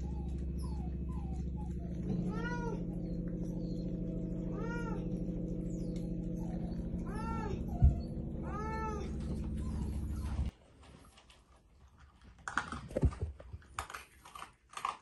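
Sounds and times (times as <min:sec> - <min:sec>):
steady low hum: 0:00.0 - 0:10.5
cat meowing: 0:02.0 - 0:02.9, 0:04.4 - 0:05.1, 0:07.0 - 0:09.9.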